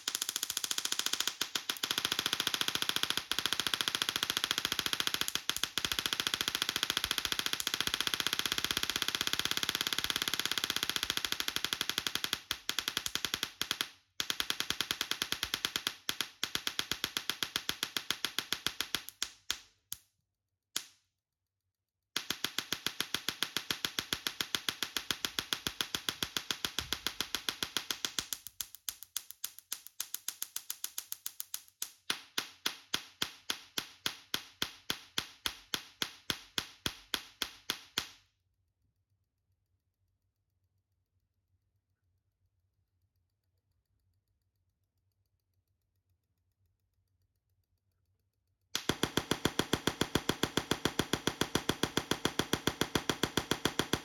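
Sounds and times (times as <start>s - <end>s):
electric spark crackling: 0.0s - 19.6s, 22.2s - 38.1s, 48.8s - 54.0s.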